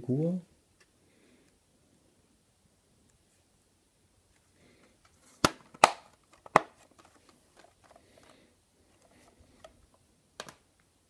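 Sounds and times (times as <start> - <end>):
handling and rustling: 4.3 - 10.6.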